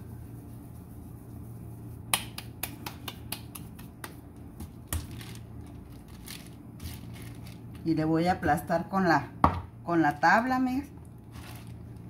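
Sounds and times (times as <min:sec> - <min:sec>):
hands slapping dough: 0:00.8 - 0:06.1.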